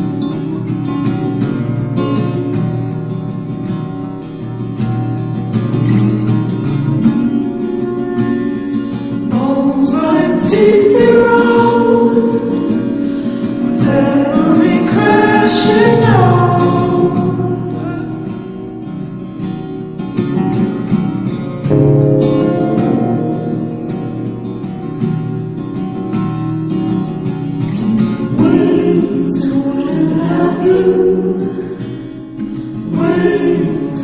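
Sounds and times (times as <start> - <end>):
acoustic guitar: 0.0 - 34.0
person singing: 21.7 - 24.5.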